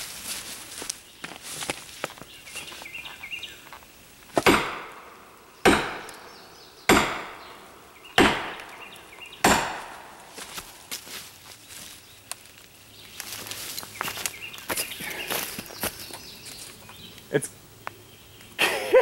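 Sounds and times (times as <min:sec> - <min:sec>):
sledgehammer striking steel wedge: 0:04.4 - 0:05.1, 0:05.7 - 0:06.3, 0:06.9 - 0:07.5, 0:08.2 - 0:08.7, 0:09.4 - 0:10.2.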